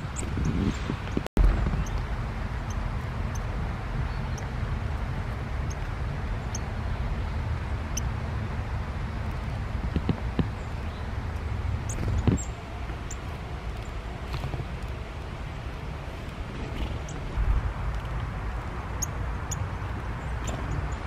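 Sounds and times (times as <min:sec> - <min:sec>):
low rumble: 0:00.0 - 0:21.0.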